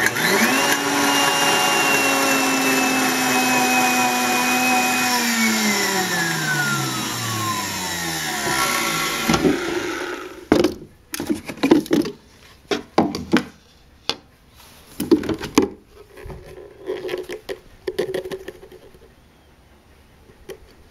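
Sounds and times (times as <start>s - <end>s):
blender motor stopping: 0.0s - 10.5s.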